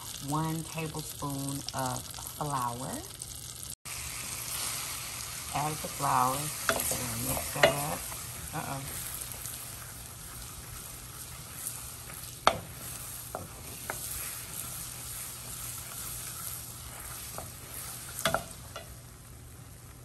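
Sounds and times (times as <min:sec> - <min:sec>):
roux sizzling and bubbling: 0:00.0 - 0:20.0
wooden spoon stirring: 0:06.0 - 0:18.9.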